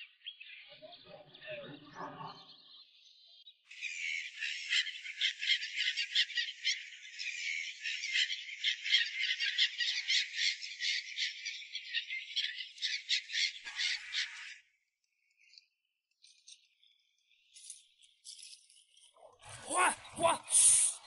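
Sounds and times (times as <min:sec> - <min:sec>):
flock of birds calling: 0:03.7 - 0:14.8, 0:19.3 - 0:21.0.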